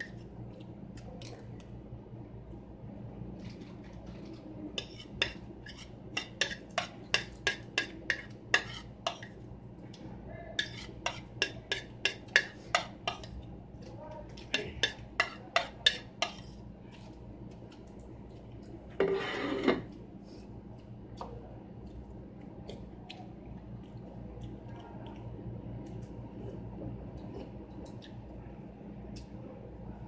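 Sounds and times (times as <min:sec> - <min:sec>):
spoon scraping a plate: 0:04.8 - 0:09.3, 0:10.6 - 0:13.3, 0:19.0 - 0:19.9.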